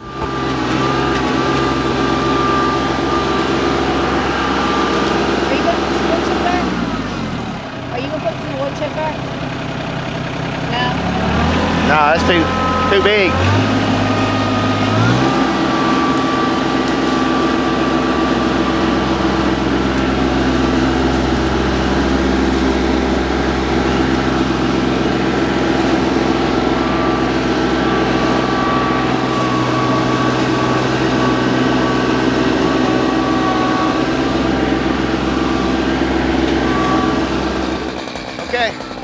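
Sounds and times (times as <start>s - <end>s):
tractor diesel engine running: 0.0s - 39.0s
tree dragging through brush: 11.3s - 37.9s.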